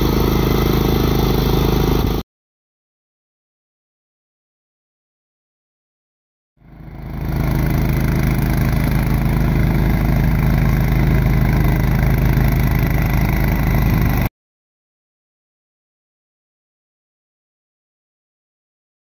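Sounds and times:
tractor engine running: 0:00.0 - 0:02.2, 0:06.6 - 0:14.3.

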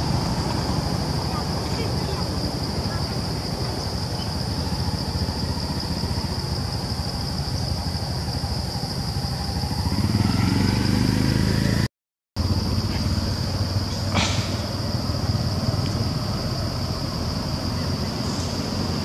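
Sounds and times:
high-pitched insect drone: 0:00.0 - 0:11.8, 0:12.4 - 0:19.0.

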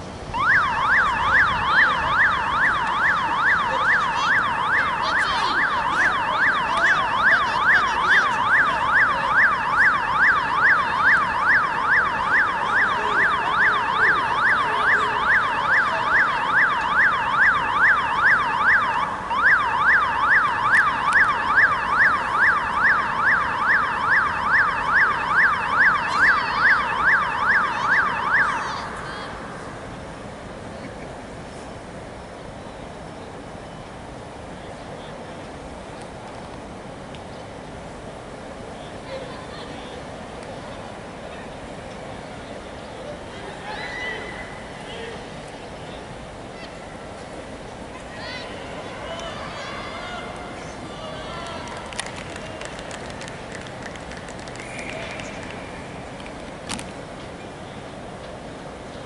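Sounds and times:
siren yelping: 0:00.3 - 0:29.6.

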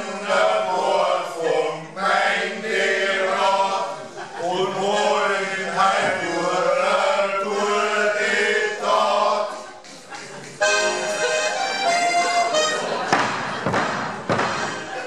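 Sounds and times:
accordion holding notes: 0:00.0 - 0:09.6, 0:10.6 - 0:15.0
men singing in chorus: 0:00.0 - 0:09.9.

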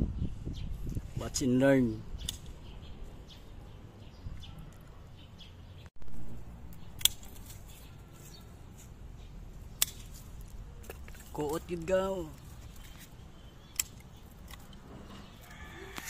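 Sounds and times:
sharp clicks: 0:02.2 - 0:02.6, 0:13.6 - 0:14.8.

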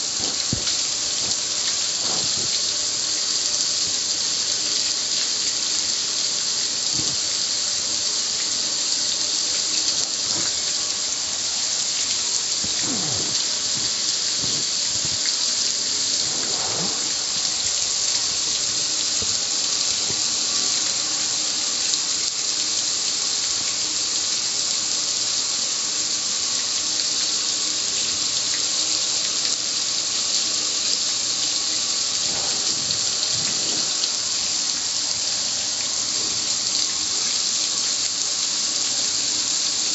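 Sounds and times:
water splashing: 0:00.0 - 0:03.4, 0:10.1 - 0:20.4, 0:32.0 - 0:35.6
water spraying from hose: 0:00.0 - 0:39.9.

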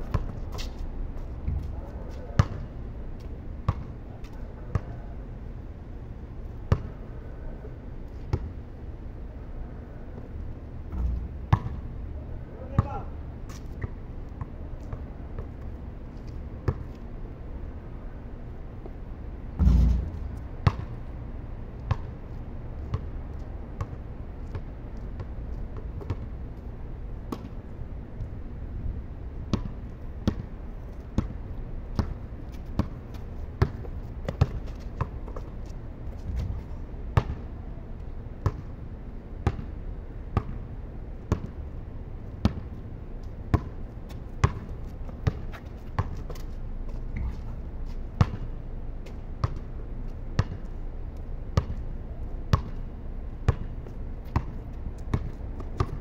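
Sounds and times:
basketball bouncing on concrete: 0:03.7 - 0:03.9, 0:06.7 - 0:07.0, 0:10.9 - 0:11.8, 0:12.7 - 0:13.1, 0:19.6 - 0:21.0, 0:29.5 - 0:30.5, 0:31.2 - 0:35.5, 0:37.2 - 0:37.5, 0:38.4 - 0:38.7, 0:40.4 - 0:40.6, 0:42.4 - 0:42.8, 0:43.5 - 0:46.4, 0:48.2 - 0:48.5, 0:49.4 - 0:49.7, 0:50.4 - 0:50.7, 0:52.5 - 0:52.8, 0:53.5 - 0:56.0
low rumble: 0:19.6 - 0:20.6
heavy low thud: 0:19.6 - 0:20.7.

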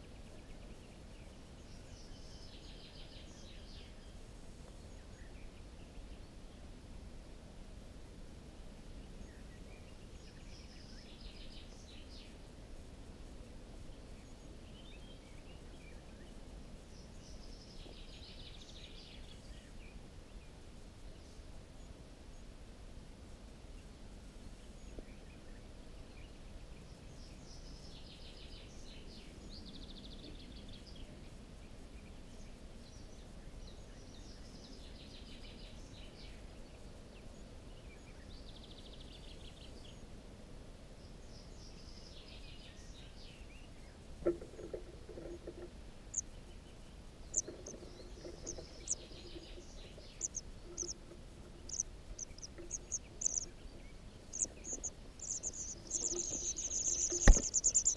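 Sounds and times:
faint birdsong: 0:00.0 - 0:57.9
nestlings cheeping: 0:47.3 - 0:53.6, 0:54.2 - 0:57.9.

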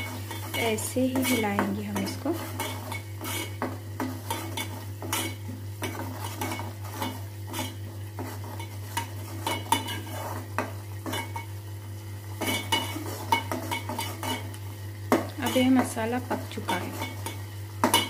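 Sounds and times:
metal spoon scraping pot: 0:00.0 - 0:11.5, 0:12.4 - 0:14.5, 0:15.4 - 0:18.0.

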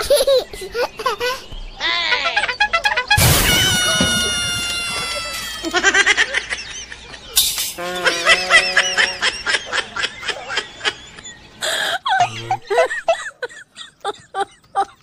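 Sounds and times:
person laughing: 0:05.1 - 0:15.0.

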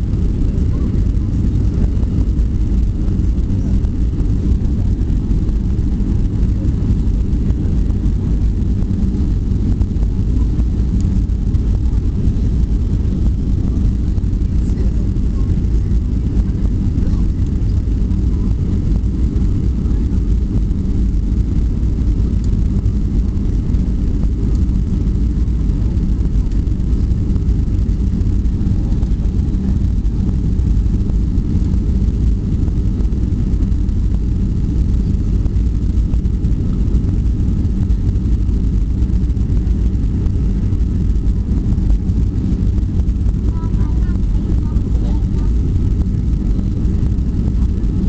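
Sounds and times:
jet engine rumble in cabin: 0:00.0 - 0:48.0.

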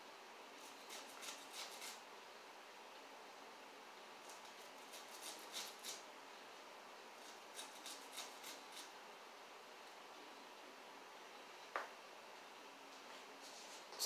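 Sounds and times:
knife scraping corn cob: 0:00.6 - 0:02.0, 0:04.2 - 0:06.0, 0:07.2 - 0:09.0.

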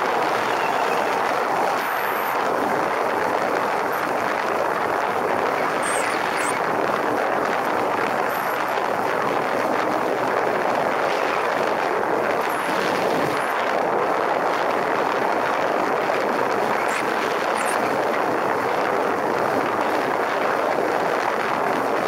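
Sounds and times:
wind rushing on microphone: 0:00.0 - 0:22.0.

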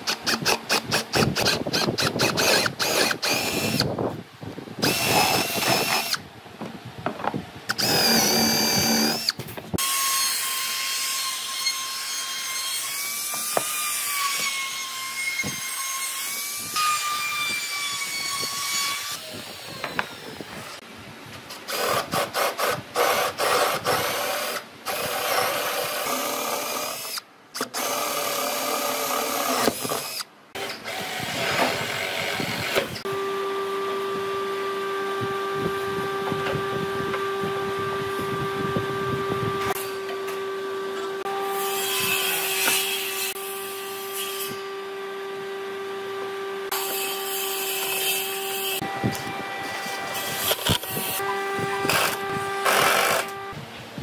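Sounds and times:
power drill boring into wood: 0:00.1 - 0:03.9, 0:04.8 - 0:06.2, 0:07.7 - 0:09.9, 0:50.3 - 0:53.4.

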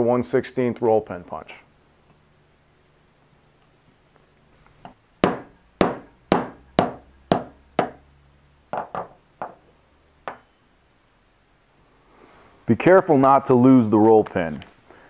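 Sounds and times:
hammer striking metal punch: 0:04.8 - 0:08.0, 0:10.2 - 0:10.6.

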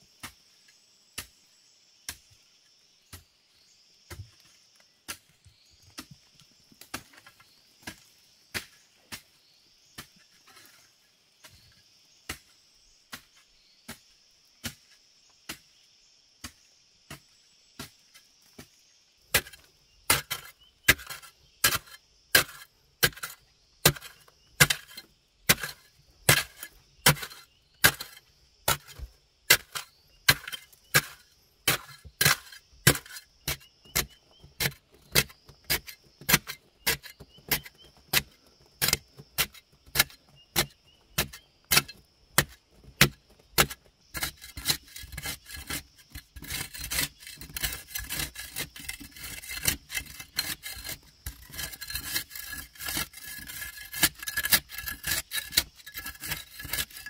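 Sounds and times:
hoe blade scraping clay: 0:19.3 - 0:57.0
hoe striking hard clay: 0:19.4 - 0:57.0.

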